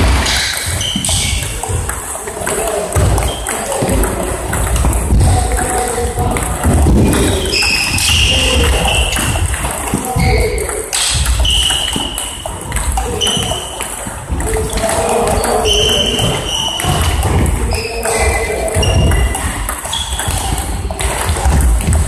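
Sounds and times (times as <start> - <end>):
table tennis balls clicking: 0.1 - 22.0.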